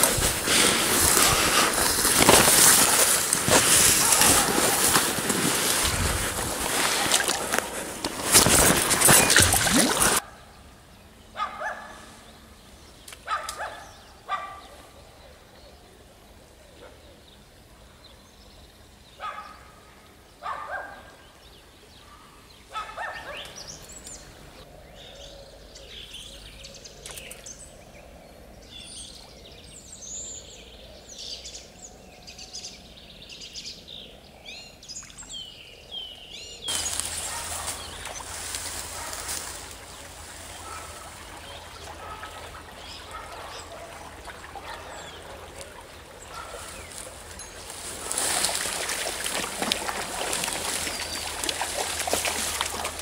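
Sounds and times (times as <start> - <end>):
stream water rushing: 0.0 - 10.2, 36.7 - 53.0
small birds chirping: 21.6 - 53.0.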